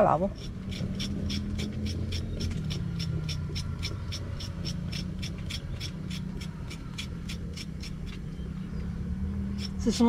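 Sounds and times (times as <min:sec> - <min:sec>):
knife scraping carrot skin: 0:00.3 - 0:08.2.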